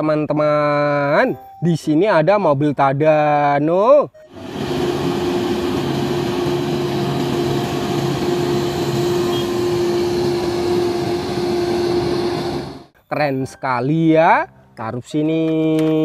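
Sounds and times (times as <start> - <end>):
crane engine droning: 4.2 - 12.9
road noise: 4.3 - 12.9.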